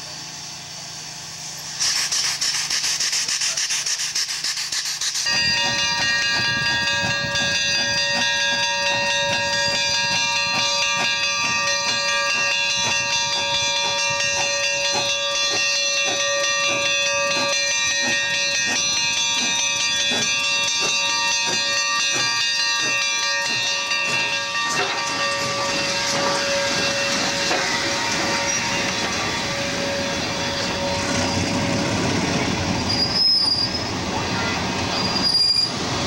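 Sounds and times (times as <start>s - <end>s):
steam engine chuffing: 0.0s - 34.9s
locomotive bell ringing: 5.2s - 33.9s.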